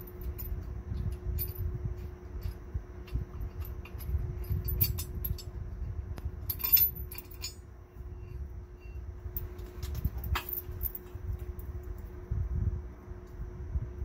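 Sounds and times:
light metallic clinks: 0.0 - 5.5, 6.4 - 7.6, 8.3 - 12.1
faint steady hum: 0.0 - 14.0.

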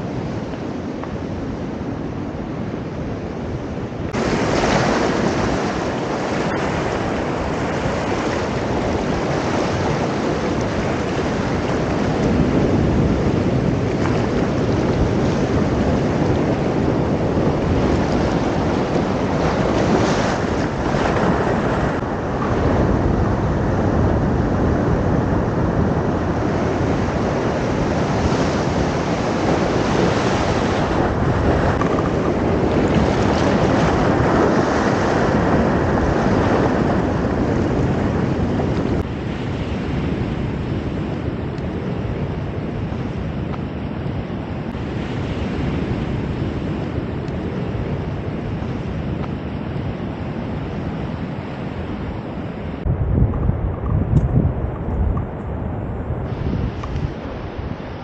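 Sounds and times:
wind on microphone: 0.0 - 58.0
surf rushing over rocks: 4.1 - 40.6.

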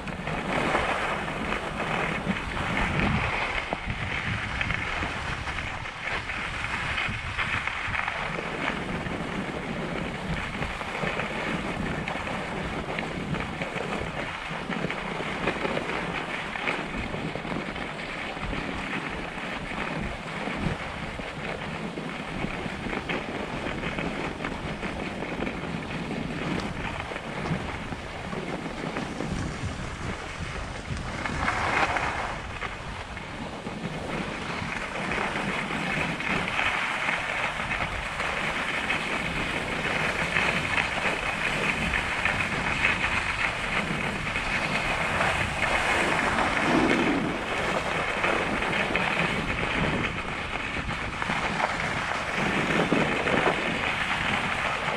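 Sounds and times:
skis scraping over snow: 0.0 - 54.9
wind noise on microphone: 0.0 - 54.9.

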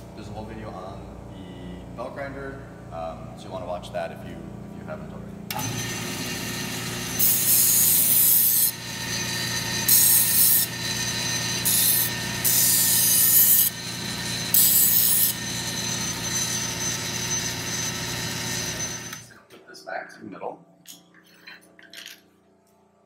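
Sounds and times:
belt grinder humming: 5.5 - 19.3
metal edge grinding on belt: 5.5 - 19.3.

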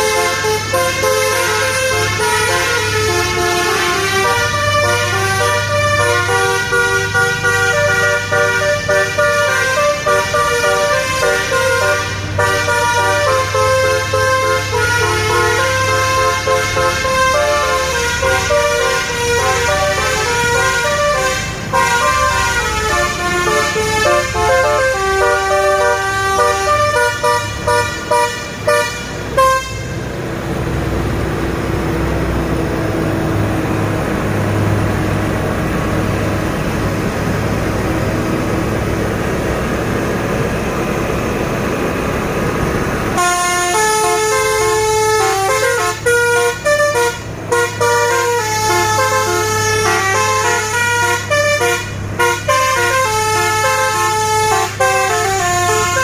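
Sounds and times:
truck horn tooting a melody: 0.0 - 30.2, 43.1 - 56.0
diesel truck engine: 0.0 - 56.0.

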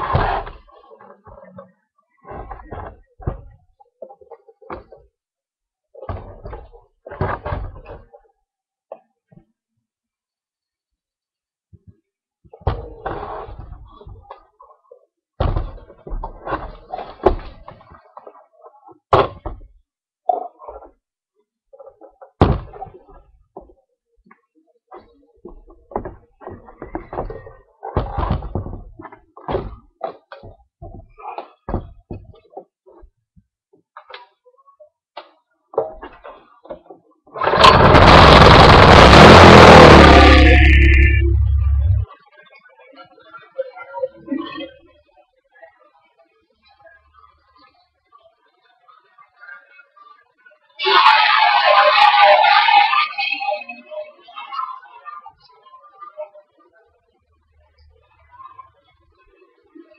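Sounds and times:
small engine running: 37.4 - 42.0.

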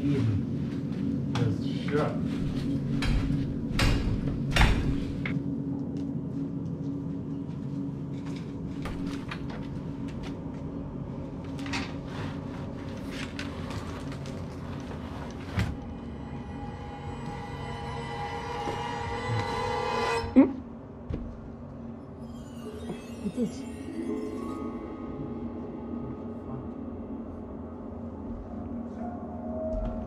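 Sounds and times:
metal elevator doors clanking: 2.4 - 5.4.

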